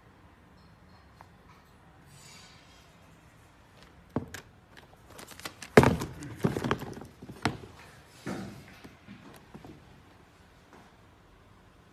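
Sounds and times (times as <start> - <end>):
handling clicks and knocks: 3.8 - 7.9
sneaker thunk on cardboard box: 5.4 - 8.5.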